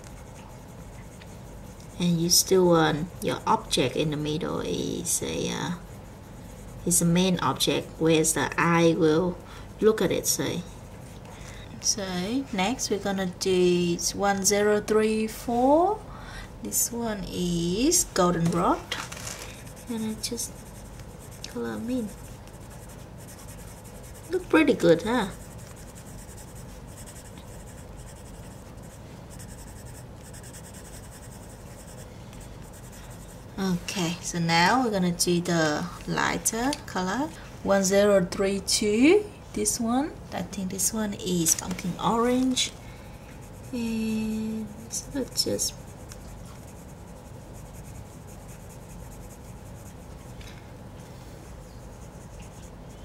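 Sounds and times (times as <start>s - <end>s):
pencil scratching on paper: 0.0s - 11.2s, 19.6s - 34.1s, 43.4s - 50.4s, 51.4s - 53.0s.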